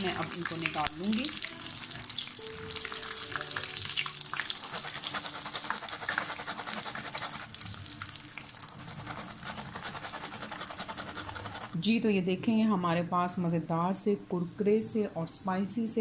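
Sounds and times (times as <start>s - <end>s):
hot oil sizzling and crackling: 0.0s - 10.4s.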